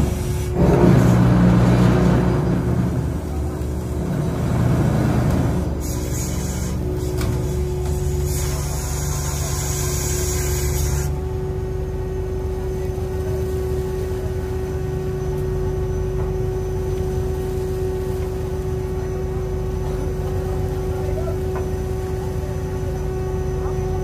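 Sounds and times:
boat engine drone: 0.0 - 24.0
steady hum tone: 0.0 - 24.0.

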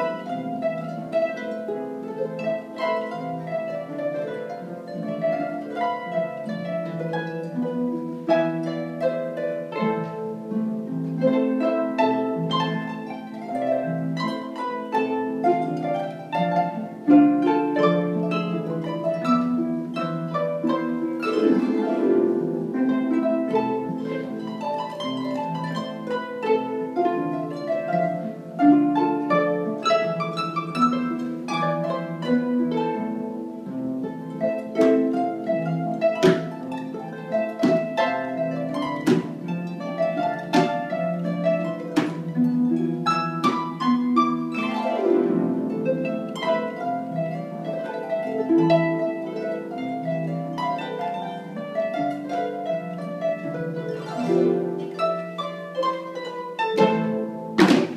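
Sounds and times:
harps playing cumbia: 0.0 - 57.9
sharp knocks: 36.2 - 36.8, 37.6 - 38.0, 38.9 - 39.5, 40.4 - 41.0, 41.8 - 42.4, 43.4 - 43.8, 57.6 - 57.9.

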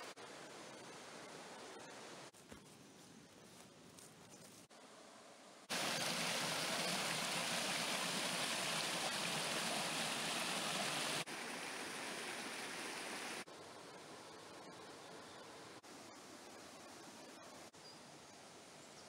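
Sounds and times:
river water rushing over rocks: 5.7 - 13.4.

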